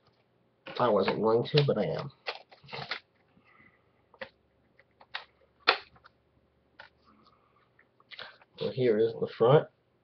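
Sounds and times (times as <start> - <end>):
sharp plastic clicks: 4.2 - 6.2.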